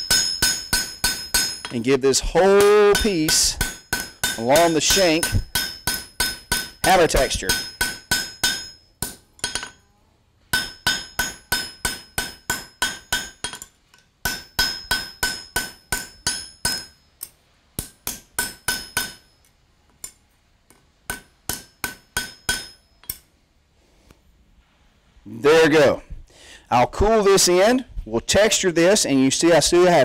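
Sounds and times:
hammer striking steel on anvil: 0.0s - 9.8s, 10.5s - 23.4s.

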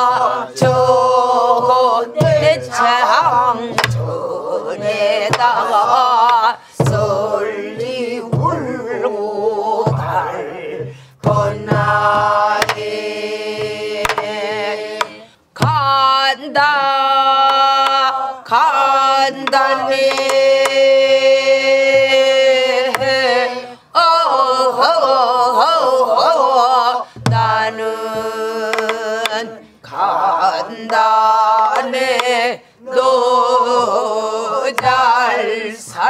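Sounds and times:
barrel drum strokes: 0.0s - 9.2s, 9.8s - 16.0s
group singing folk song: 0.0s - 36.0s.

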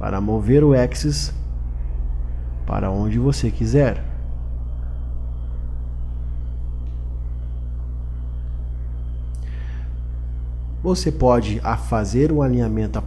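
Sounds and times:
low electrical hum: 0.0s - 13.0s
faint click: 6.8s - 7.1s.

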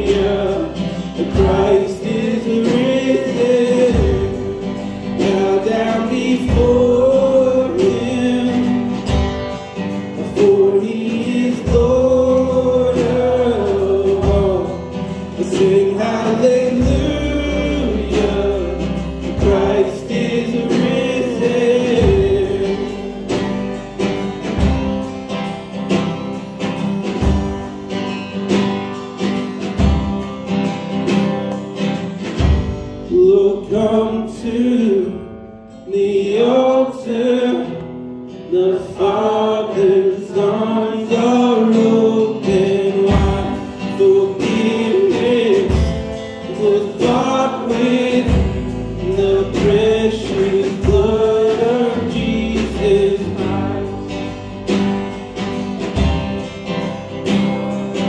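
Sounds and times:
voices singing gospel song: 0.0s - 25.4s, 33.1s - 35.2s, 35.8s - 58.0s
instrumental accompaniment: 0.0s - 33.3s, 41.2s - 58.0s.

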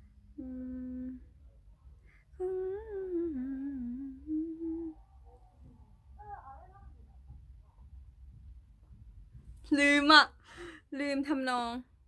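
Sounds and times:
woman humming: 0.4s - 1.3s, 2.4s - 5.0s.

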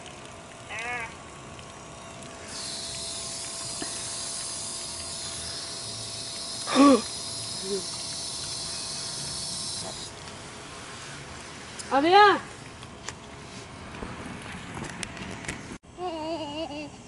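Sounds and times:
hose nozzle spraying water: 2.4s - 10.5s.

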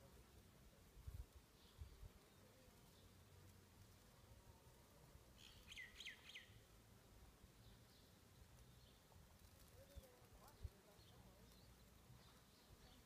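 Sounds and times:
faint whistled bird call: 5.4s - 6.6s.

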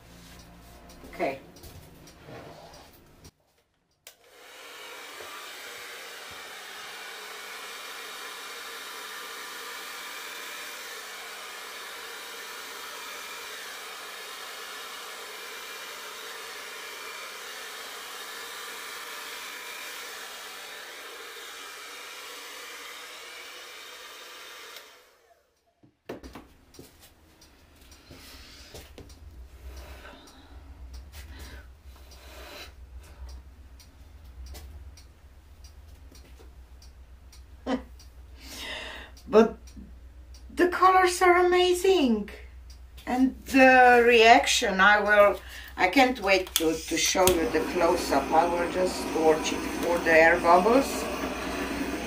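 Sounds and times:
hair dryer running: 4.1s - 25.5s, 43.4s - 52.0s.

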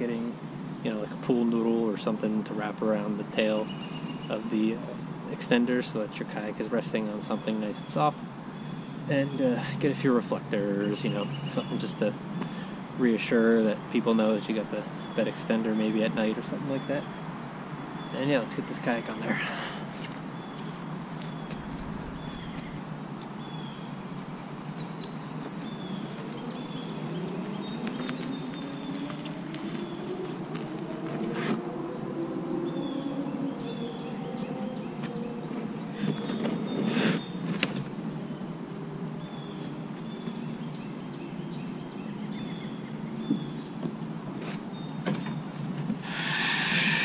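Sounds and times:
birds chirping: 0.0s - 47.0s
low hum: 18.5s - 36.8s.

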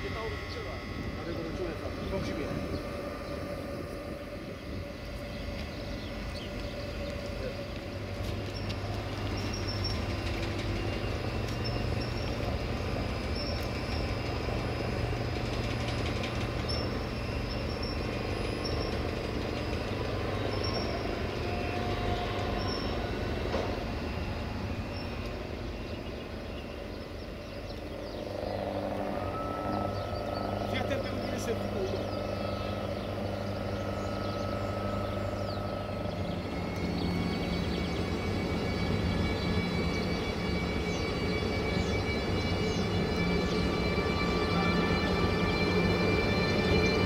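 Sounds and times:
train rolling on track: 0.0s - 47.0s
high-pitched wheel squeals: 28.1s - 47.0s.

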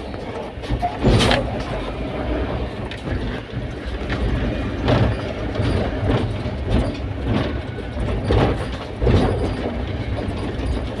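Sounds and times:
engine and road rumble: 0.0s - 11.0s
knocks and rattles: 2.7s - 11.0s.

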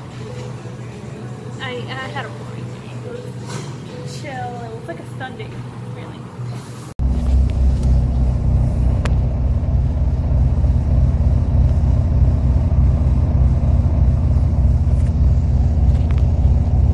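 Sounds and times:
vehicle engine idling: 7.0s - 16.9s.

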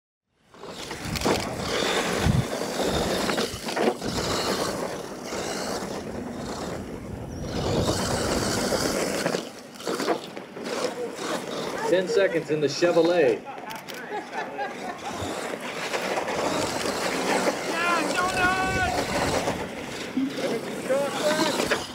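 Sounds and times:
toy truck motor: 0.5s - 21.9s
tyres on loose dirt: 0.5s - 21.9s.

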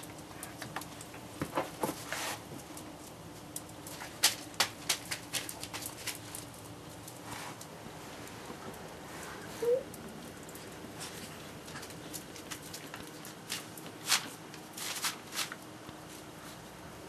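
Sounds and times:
dog claws clicking on floor: 0.0s - 7.2s, 10.2s - 15.7s.

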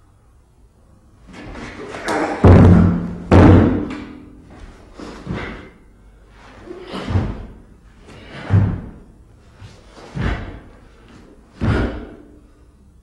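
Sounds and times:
bare feet thudding on wooden floor: 1.3s - 5.7s, 6.8s - 12.2s.

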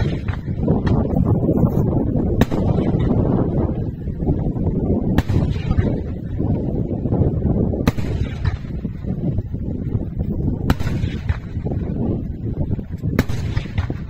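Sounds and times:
sharp firework bangs: 0.0s - 1.5s, 2.3s - 3.8s, 5.1s - 6.2s, 7.8s - 9.3s, 10.6s - 12.1s, 13.1s - 14.0s
low rumble of firework bursts: 0.0s - 14.0s.

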